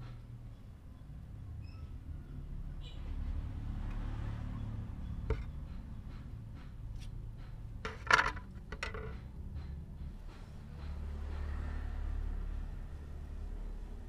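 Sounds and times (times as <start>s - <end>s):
metal strip clattering on concrete: 7.8s - 9.4s.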